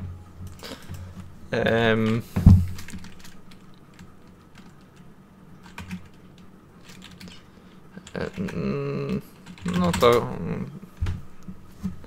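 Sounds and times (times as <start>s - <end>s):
keyboard keys clicking: 2.0s - 5.0s, 5.6s - 7.4s.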